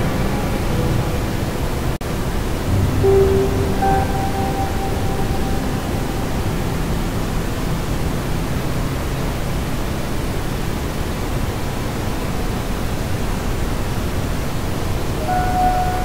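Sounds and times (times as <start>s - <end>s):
low rumble: 0.0s - 10.0s
rushing static noise: 0.0s - 16.0s.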